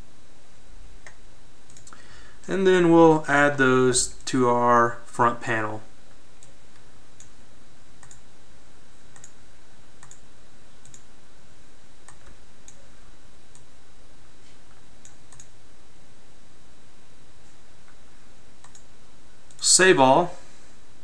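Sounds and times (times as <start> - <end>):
computer mouse clicking: 1.0 - 2.0, 8.0 - 8.2, 9.1 - 9.4, 10.0 - 10.2, 10.8 - 11.0, 12.0 - 12.8, 15.0 - 15.5, 18.6 - 18.9.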